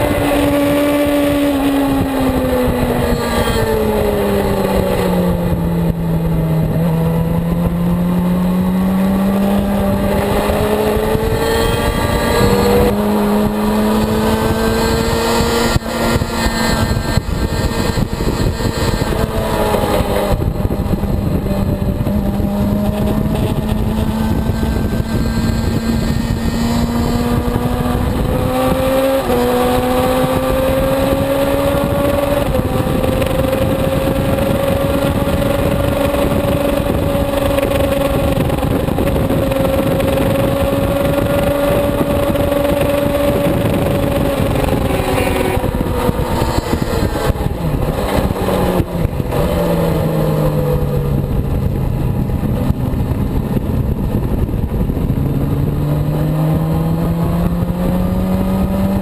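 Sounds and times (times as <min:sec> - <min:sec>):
motorcycle engine at high revs: 0:00.0 - 0:59.0.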